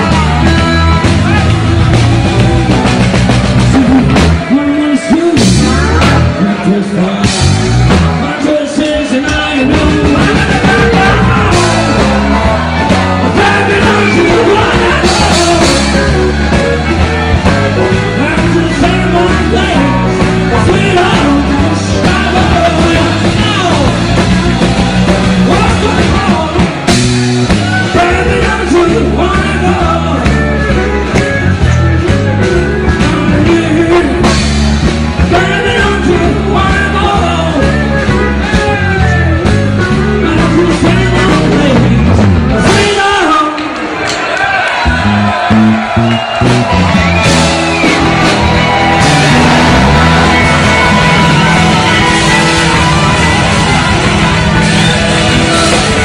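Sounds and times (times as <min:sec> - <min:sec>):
live blues-rock band playing: 0:00.0 - 0:56.0
man singing into a microphone: 0:03.7 - 0:07.4, 0:08.2 - 0:12.1, 0:13.2 - 0:16.2, 0:18.1 - 0:24.2, 0:25.5 - 0:26.8, 0:27.8 - 0:30.6, 0:32.9 - 0:34.5, 0:35.3 - 0:39.3, 0:40.0 - 0:43.7.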